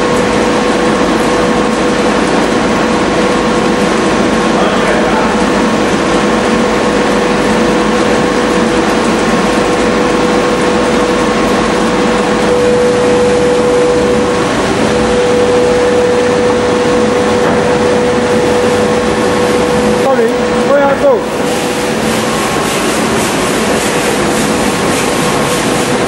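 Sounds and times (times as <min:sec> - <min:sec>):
machine noise with constant whine: 0:00.0 - 0:26.0.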